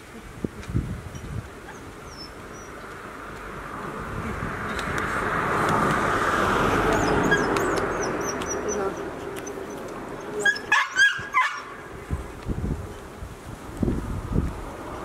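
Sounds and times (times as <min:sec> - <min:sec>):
van passing on road: 0:02.3 - 0:10.4.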